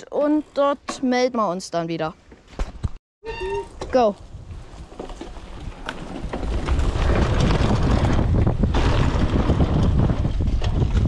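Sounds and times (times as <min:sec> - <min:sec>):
wind buffeting microphone: 0:04.0 - 0:11.0
bike tyres rumbling on dirt: 0:04.2 - 0:11.0.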